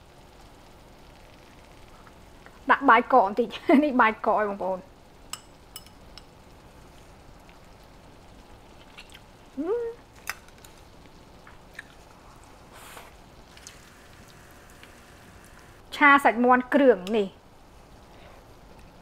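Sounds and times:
person chewing: 8.7 - 9.3, 11.4 - 12.5
person humming mmm: 9.6 - 10.0.

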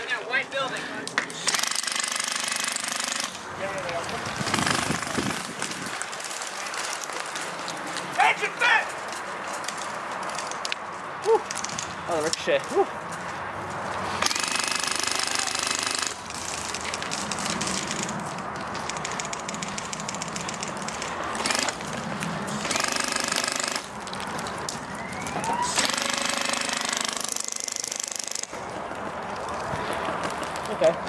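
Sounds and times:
airsoft minigun firing rapid bursts: 1.5 - 3.4, 4.5 - 5.3, 14.2 - 16.6, 19.0 - 21.8, 22.6 - 23.9, 25.8 - 28.4.

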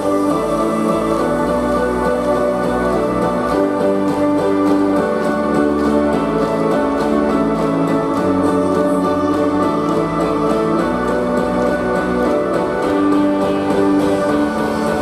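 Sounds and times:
dance music: 0.0 - 15.0.

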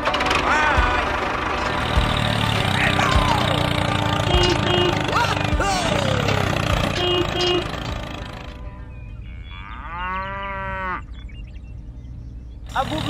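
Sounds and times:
background music: 0.0 - 9.3
cow mooing: 2.5 - 11.2.

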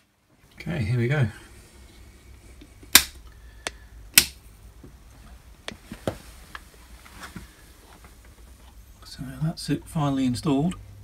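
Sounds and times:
faint low hum: 0.0 - 11.0
wall switch clicks: 2.9 - 4.4.

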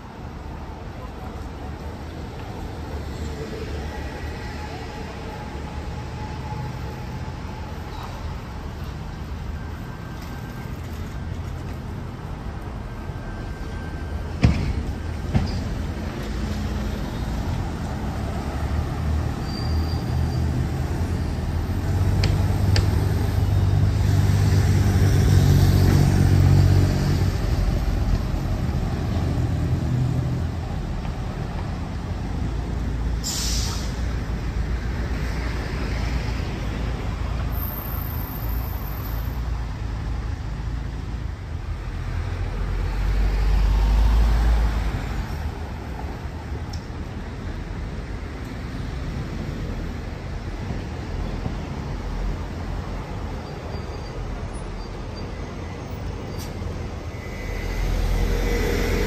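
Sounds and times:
street traffic: 0.0 - 59.0
short hiss: 33.2 - 34.0
car driving past: 56.5 - 59.0.

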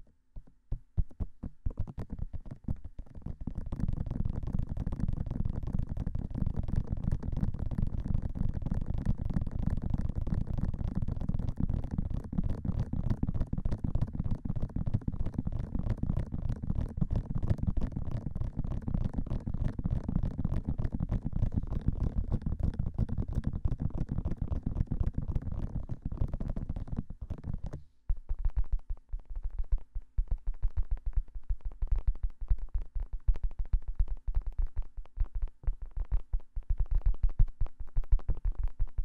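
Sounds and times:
fingertips tapping on microphone: 0.0 - 39.0.

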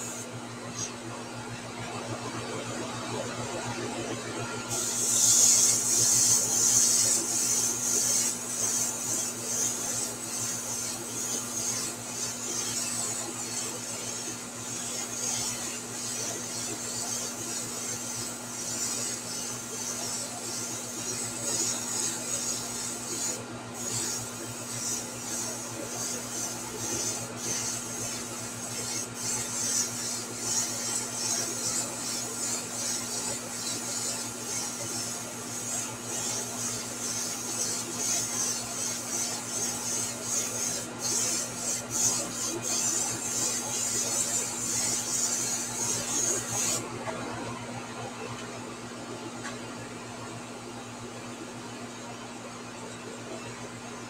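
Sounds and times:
airbrush hissing: 4.7 - 46.8.

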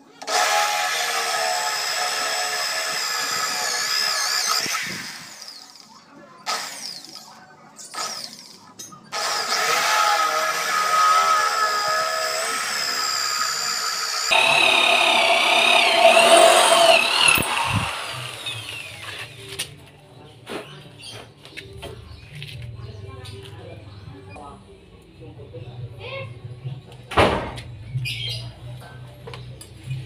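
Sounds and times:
electric drill boring through steel: 0.2 - 5.6, 10.6 - 19.2.

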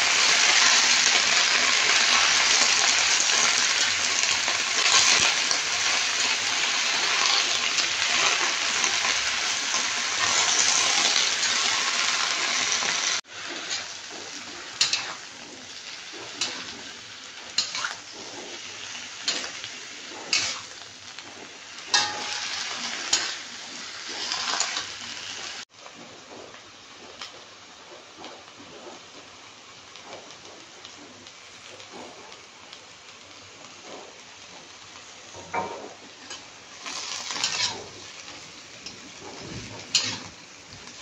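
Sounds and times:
greens sizzling in hot oil: 0.0 - 41.0
metal spatula scraping wok: 0.1 - 25.6, 35.5 - 41.0.

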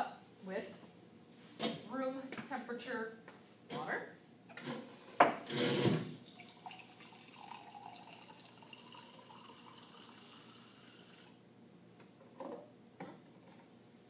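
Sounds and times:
water running into glass beaker: 6.2 - 11.4.

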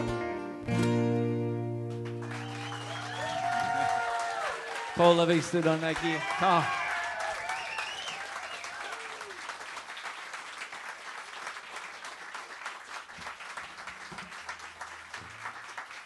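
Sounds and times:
audience applauding: 1.9 - 16.0
crowd shouting: 2.5 - 9.4.

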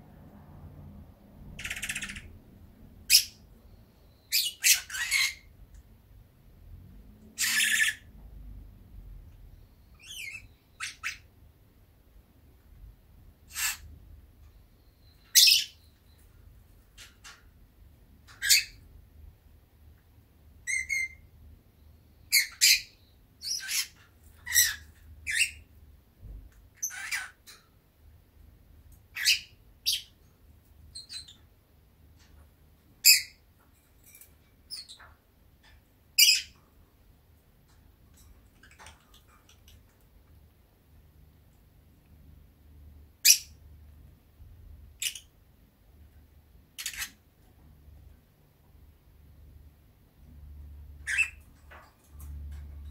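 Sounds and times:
lovebird chirping and calling: 1.5 - 2.4, 3.0 - 5.5, 7.4 - 8.1, 9.8 - 11.3, 13.5 - 13.9, 14.5 - 16.3, 18.3 - 18.8, 20.6 - 21.2, 22.2 - 25.7, 26.8 - 27.6, 29.1 - 30.2, 30.9 - 31.5, 33.0 - 33.4, 34.7 - 36.6, 43.2 - 43.6, 45.0 - 45.3, 46.8 - 47.2, 51.0 - 51.5
loud sharp bird squawk: 1.6 - 2.3, 13.5 - 13.9.

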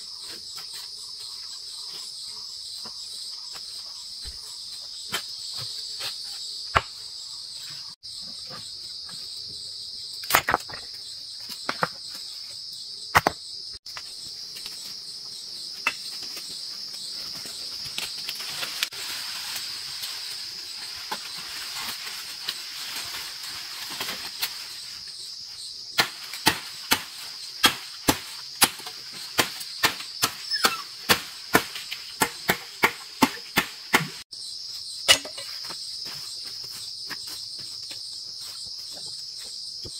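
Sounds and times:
crickets shrilling: 0.0 - 39.9
sharp knocks of chopping: 6.7 - 7.0, 26.0 - 34.2.

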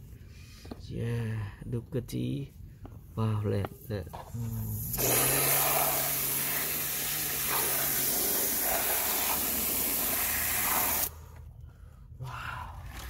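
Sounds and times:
water spray hissing: 4.7 - 11.1
low steady hum: 11.1 - 13.0.

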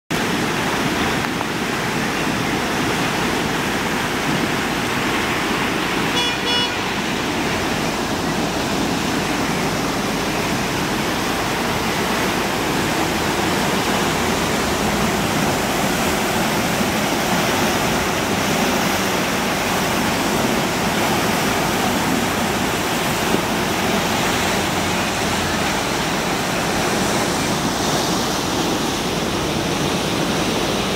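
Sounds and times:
river rushing: 0.1 - 30.9
short horn toot: 6.1 - 7.1.

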